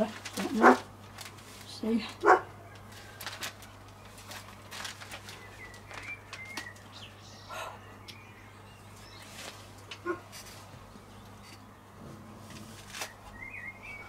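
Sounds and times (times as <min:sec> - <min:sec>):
magazine pages rustling: 0:00.0 - 0:07.1, 0:09.0 - 0:10.9, 0:12.4 - 0:13.4
high bird chirps: 0:13.1 - 0:14.0.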